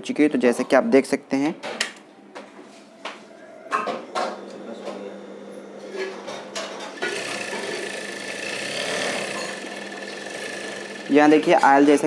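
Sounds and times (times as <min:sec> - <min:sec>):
sewing machine running with whine: 0:07.0 - 0:12.0.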